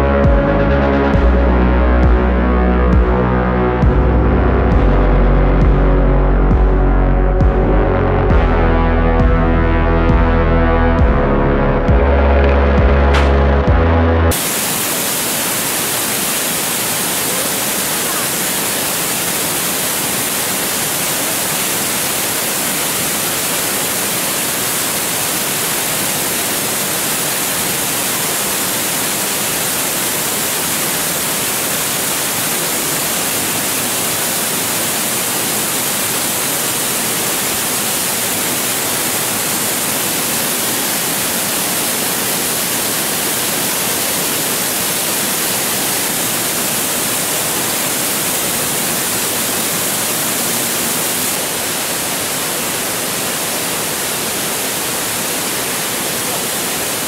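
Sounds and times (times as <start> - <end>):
waterfall crashing into pool: 13.1 - 13.4, 14.3 - 57.0.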